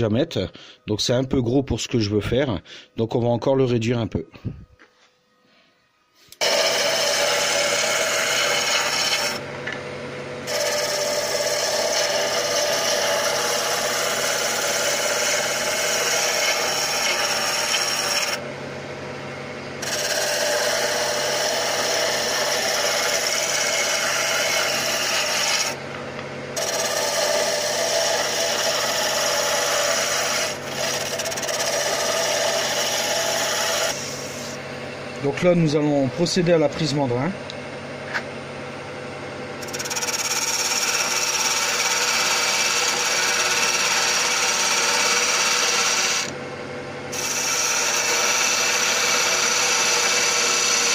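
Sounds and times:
lathe motor humming: 6.3s - 50.9s
turning tool shaving wood: 6.4s - 9.5s, 10.4s - 18.4s, 19.8s - 25.8s, 26.6s - 34.6s, 39.6s - 46.4s, 47.1s - 50.9s.

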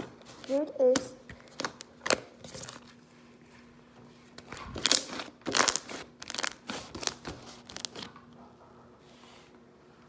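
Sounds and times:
slime squishing crackly: 4.4s - 8.2s.

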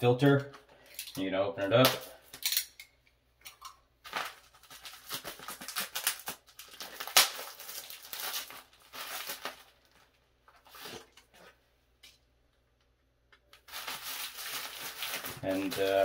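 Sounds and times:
plastic wrapping crinkling and tearing: 4.0s - 11.5s, 13.5s - 16.0s.

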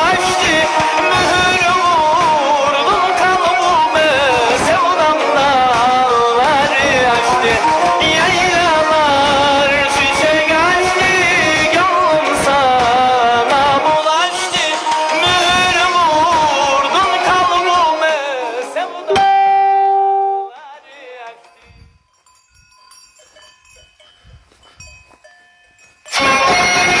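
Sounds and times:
folk song with solo voice: 0.0s - 21.9s, 26.1s - 27.0s
livestock bells tinkling: 20.6s - 27.0s.

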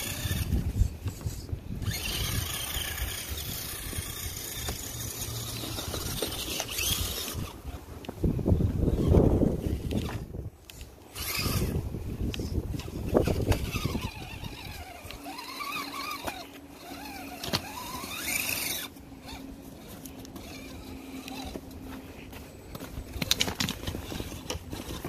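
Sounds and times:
sharp clicks and crunches: 0.0s - 8.2s, 9.0s - 25.0s
electric motor and gearbox whining: 0.0s - 25.0s.

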